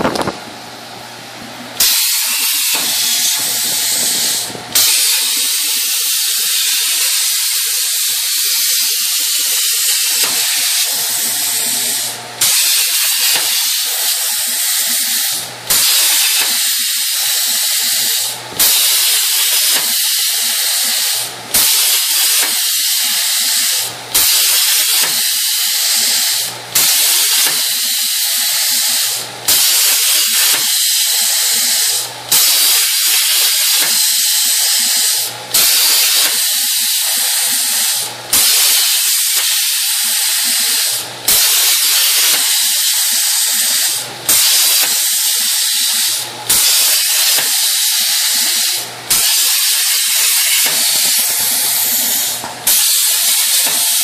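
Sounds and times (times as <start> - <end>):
plasma torch arc hissing: 1.8 - 54.0.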